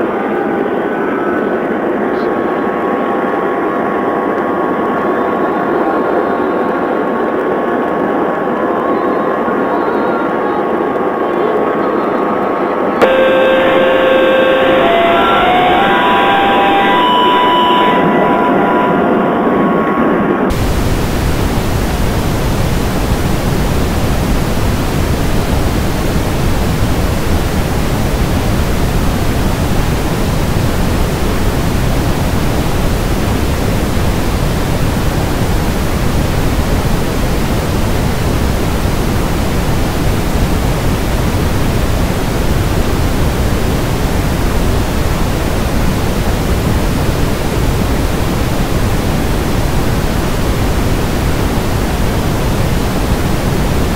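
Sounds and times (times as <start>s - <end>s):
loud steady hiss: 13.0s - 17.9s, 20.5s - 53.9s.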